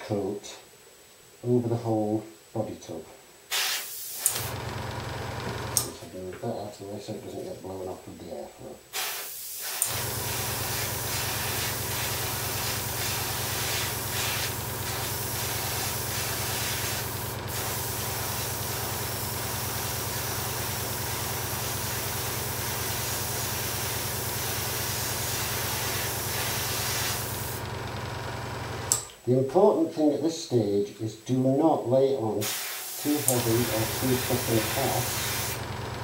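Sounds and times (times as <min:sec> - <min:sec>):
airbrush spraying hiss: 0:03.5 - 0:04.4, 0:08.9 - 0:27.6, 0:32.4 - 0:35.6
compressor humming: 0:04.0 - 0:06.4, 0:09.7 - 0:29.2, 0:32.4 - 0:36.0.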